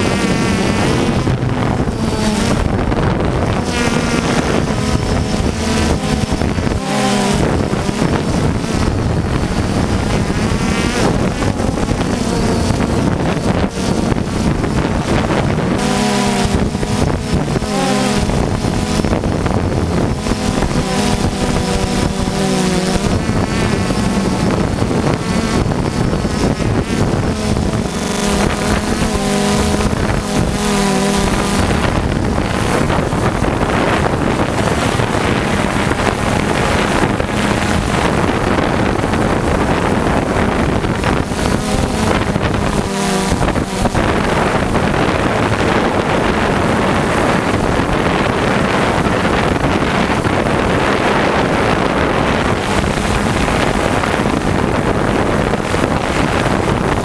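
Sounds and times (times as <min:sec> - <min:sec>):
drone propellers buzzing: 0:00.0 - 0:57.0
wind on microphone: 0:00.0 - 0:57.0.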